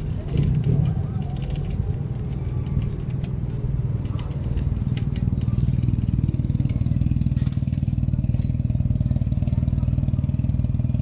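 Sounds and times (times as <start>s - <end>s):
light clicks and rattles: 0.0s - 8.8s
low street rumble: 0.0s - 11.0s
motor traffic: 0.0s - 11.0s.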